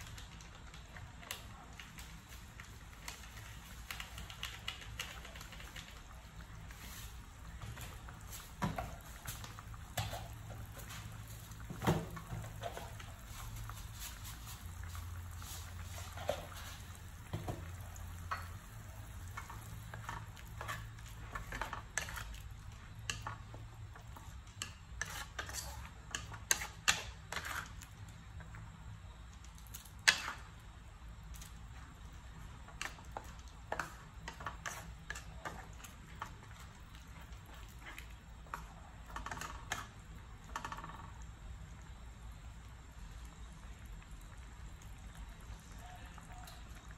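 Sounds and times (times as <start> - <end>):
spatula scraping and knocking pan: 7.5 - 22.4, 23.0 - 27.8, 32.7 - 41.0.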